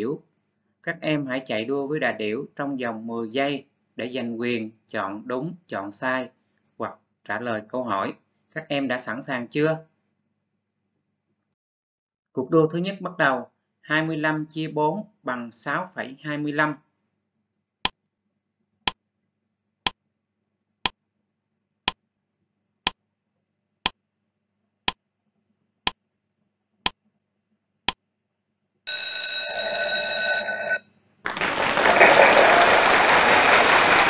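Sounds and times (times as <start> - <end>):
ringing alarm tone: 28.9 - 30.8.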